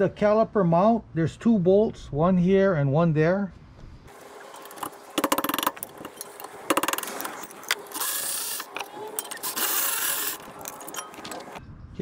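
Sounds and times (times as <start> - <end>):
electric ratchet running: 4.6 - 5.9, 6.7 - 10.8
ratchet clicks: 4.7 - 11.1.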